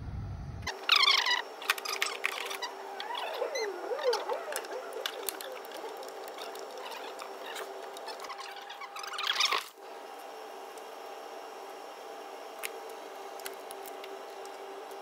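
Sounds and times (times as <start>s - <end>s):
steady hum: 0.0s - 15.0s
wavering squeak: 0.7s - 9.7s.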